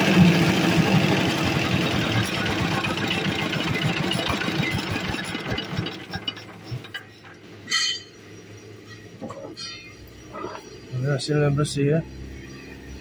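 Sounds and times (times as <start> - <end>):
corn cracking machine clatter: 0.0 - 7.4.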